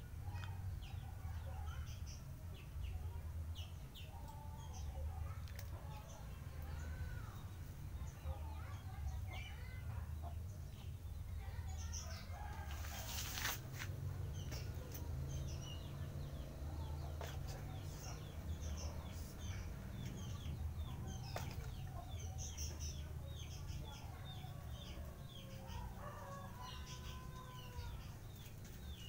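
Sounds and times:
birds peeping: 0.0 - 29.0.

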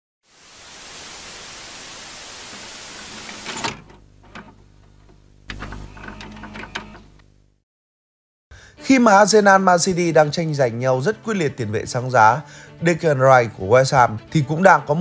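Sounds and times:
static hiss: 0.2 - 4.7.

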